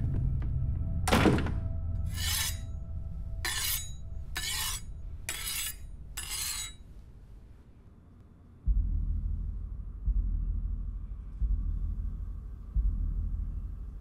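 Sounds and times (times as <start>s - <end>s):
low steady drone: 0.0s - 6.2s, 6.8s - 14.0s
knife being sharpened: 2.1s - 2.7s, 3.4s - 6.8s.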